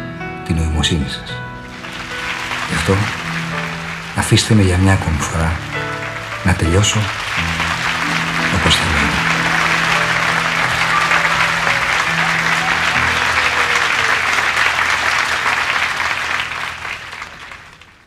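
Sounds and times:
audience applause: 0:01.6 - 0:18.0
sustained low musical notes: 0:01.7 - 0:15.8.

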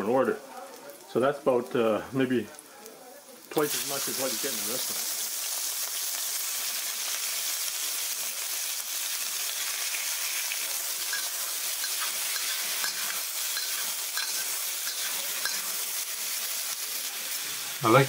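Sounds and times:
prawns sizzling in oil: 0:00.0 - 0:18.0
spatula scraping a wok: 0:10.9 - 0:16.4.

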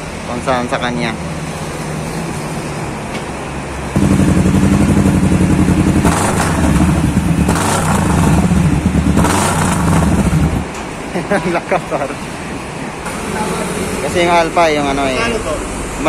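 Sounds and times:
motorcycle engine revving and idling: 0:03.9 - 0:10.8.

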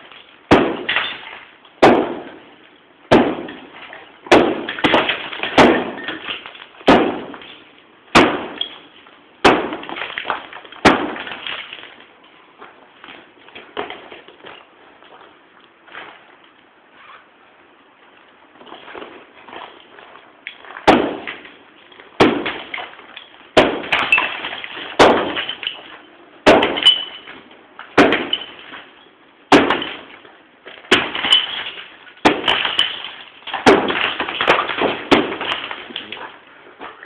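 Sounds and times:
heavy blows against brick wall: 0:00.0 - 0:11.9, 0:18.6 - 0:30.2, 0:30.8 - 0:37.0
plaster and brick debris rattling: 0:18.6 - 0:37.0.

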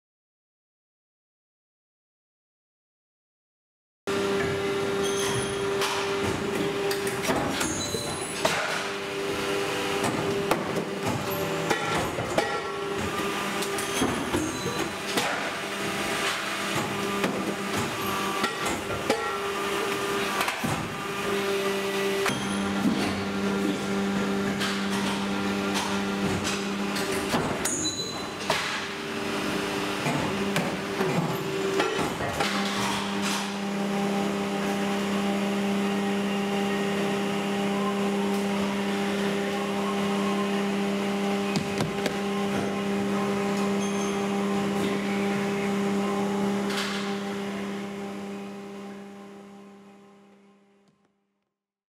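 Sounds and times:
machine clanks and knocks: 0:05.1 - 0:09.0, 0:10.0 - 0:15.6, 0:30.0 - 0:33.6.

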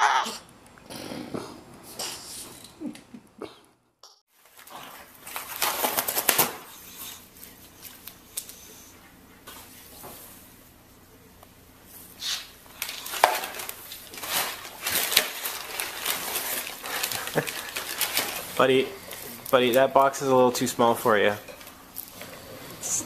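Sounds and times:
cardboard crumpling and tearing: 0:04.4 - 0:07.2, 0:12.8 - 0:19.5.

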